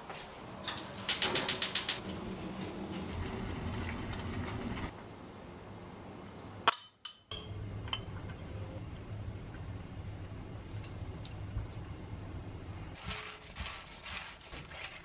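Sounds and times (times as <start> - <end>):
crockery clink: 6.7 - 8.3.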